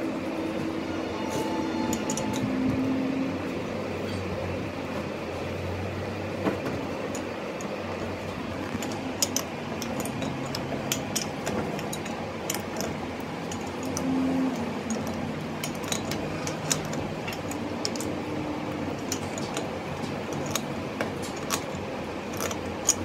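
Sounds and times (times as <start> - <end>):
steady background hum: 0.0 - 23.0
wrench metal clicks and clinks: 1.8 - 2.5, 8.6 - 23.0.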